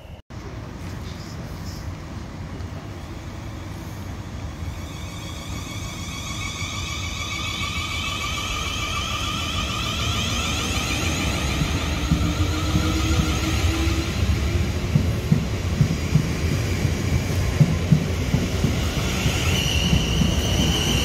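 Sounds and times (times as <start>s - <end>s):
train low rumble: 0.0s - 21.0s
electric train inverter whine: 2.6s - 15.5s.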